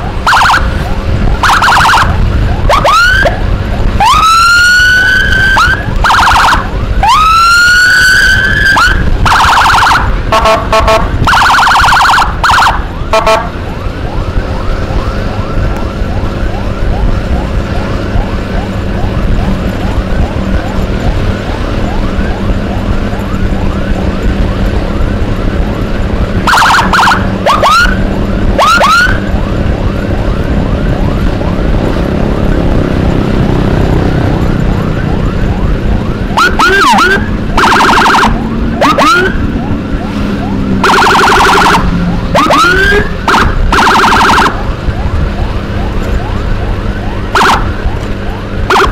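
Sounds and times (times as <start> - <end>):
faint fast-cycling siren: 0.0 - 48.9
motorcycle engine: 0.0 - 48.9
motorcycle siren whooping and warbling: 0.0 - 48.9
wind noise: 0.0 - 48.9.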